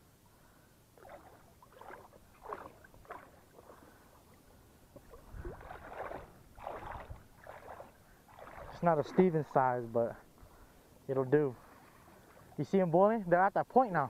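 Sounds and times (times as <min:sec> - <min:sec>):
fish splashing in water: 0:01.0 - 0:04.0, 0:04.9 - 0:09.4.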